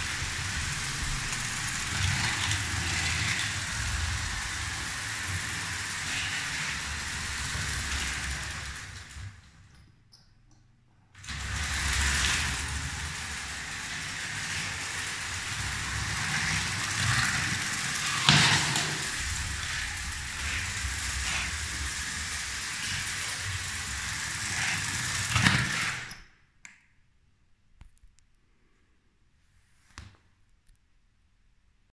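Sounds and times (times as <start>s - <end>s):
loud track clacks: 0.0s - 9.5s, 11.2s - 26.1s
toy train rattling on track: 0.0s - 9.9s, 11.2s - 26.2s.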